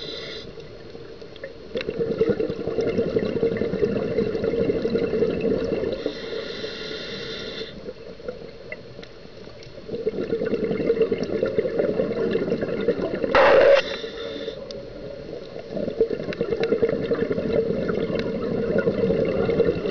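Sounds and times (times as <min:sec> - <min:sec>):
regulator inhale hiss: 0:00.0 - 0:00.6, 0:06.0 - 0:07.8, 0:13.4 - 0:14.7
exhaled bubbles underwater: 0:01.4 - 0:06.2, 0:09.8 - 0:19.9.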